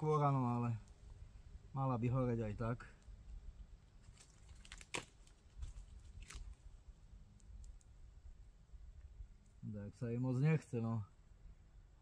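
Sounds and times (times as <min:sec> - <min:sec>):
small fire crackling: 0:02.6 - 0:09.6.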